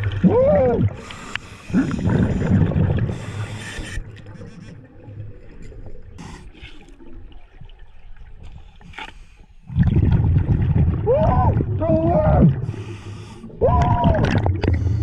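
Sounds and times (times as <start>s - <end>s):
exhaled bubbles rumbling: 0.0s - 1.1s, 1.7s - 3.4s, 9.7s - 15.0s.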